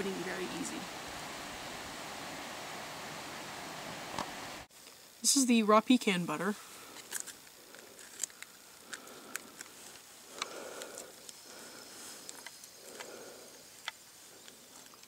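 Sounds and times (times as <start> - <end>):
packet rustling: 6.9 - 11.4
plastic pack crinkling and clicking: 7.0 - 11.4.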